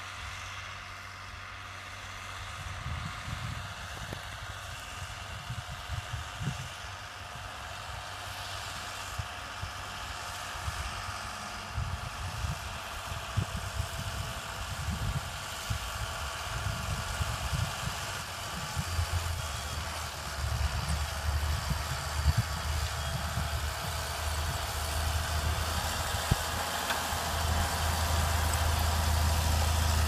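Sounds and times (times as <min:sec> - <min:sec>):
tractor diesel engine under load: 0:00.0 - 0:30.0.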